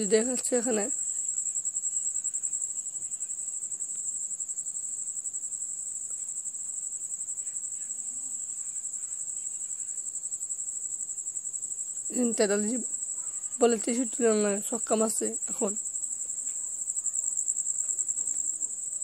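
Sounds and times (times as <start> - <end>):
insect trilling: 0.0 - 19.0.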